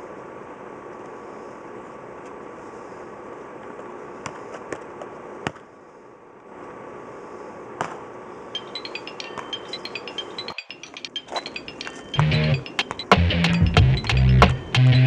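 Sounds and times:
background hum: 0.0 - 15.0
outro music rising notes: 8.6 - 15.0.

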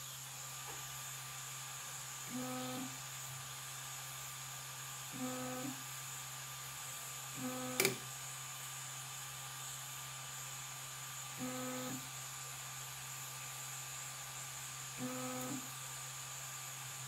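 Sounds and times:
fans humming: 0.0 - 17.0
stepper motor buzzing: 2.1 - 4.2, 5.0 - 6.0, 7.2 - 8.3, 11.1 - 12.4, 13.4 - 16.8
sharp click: 7.8 - 8.0.

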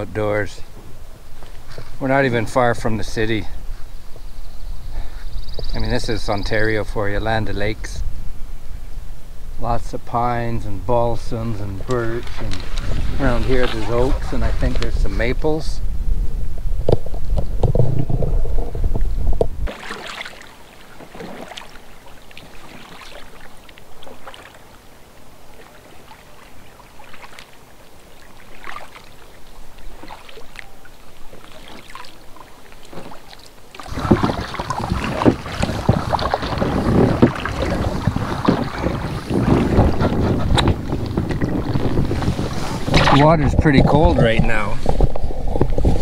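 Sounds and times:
wind rumble on microphone: 0.8 - 19.7, 33.9 - 46.0
paddle strokes splashing water: 11.3 - 15.2, 16.9 - 46.0.

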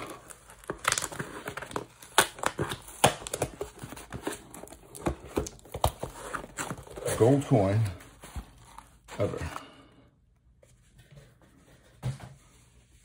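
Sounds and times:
cardboard box handled: 0.0 - 9.6.

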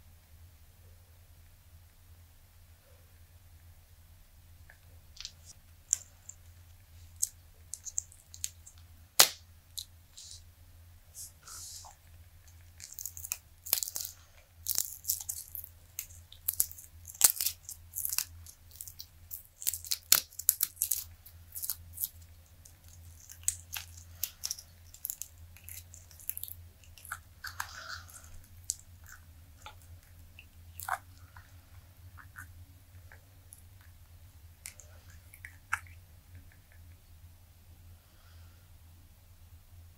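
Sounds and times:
resin crackling and snapping: 4.7 - 10.4, 11.9 - 37.0.

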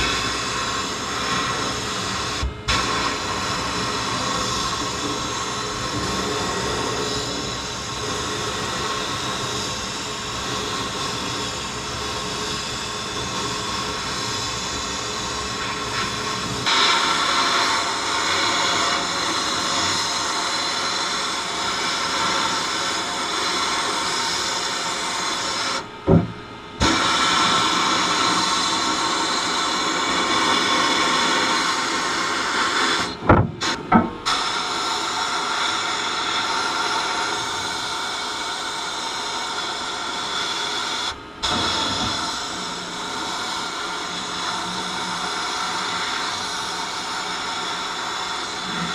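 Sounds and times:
sandblasting hiss: 0.0 - 25.9, 26.8 - 48.9.

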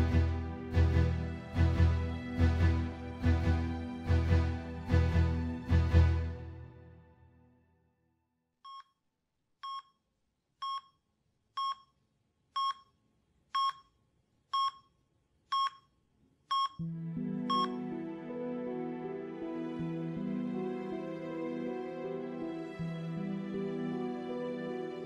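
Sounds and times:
soft music: 0.0 - 8.3, 16.8 - 25.0
patient monitor beeping: 14.6 - 16.8, 17.5 - 17.8.

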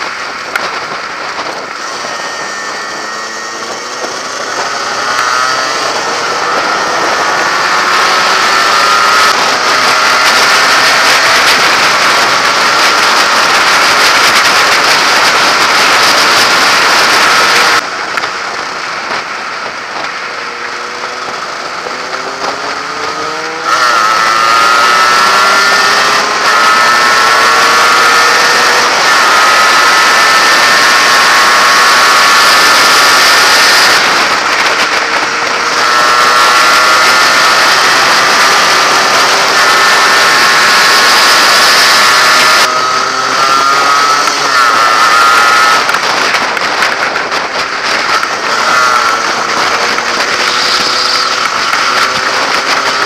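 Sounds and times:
motorcycle engine accelerating: 0.0 - 53.0
wind rush on microphone: 0.0 - 53.0.

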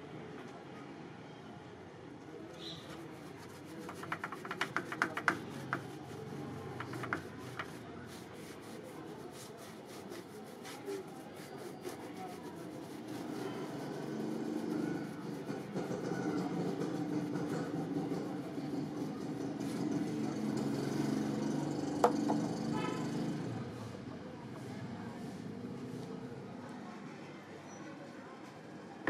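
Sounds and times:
paintbrush scrubbing on plaster: 2.7 - 20.8.

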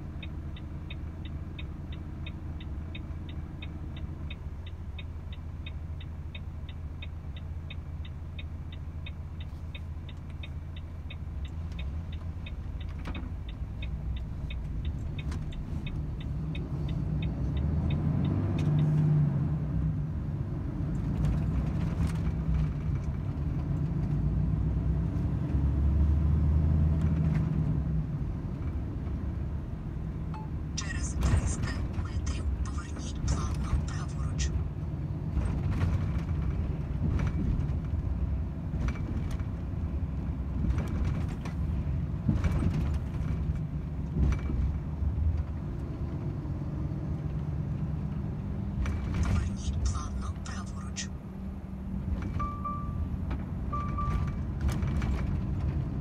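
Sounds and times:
turn indicator ticking: 0.0 - 19.2, 30.2 - 34.9
truck diesel engine rumbling: 0.0 - 25.1, 27.5 - 56.0.

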